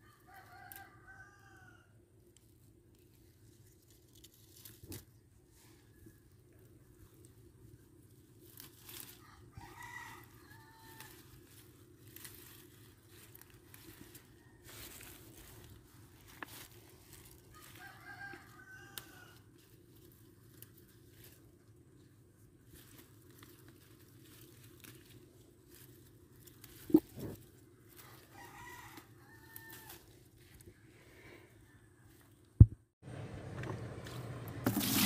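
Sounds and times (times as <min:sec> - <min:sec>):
rooster crowing: 0:00.0 - 0:02.0, 0:09.1 - 0:11.2, 0:17.5 - 0:19.5, 0:28.0 - 0:30.1.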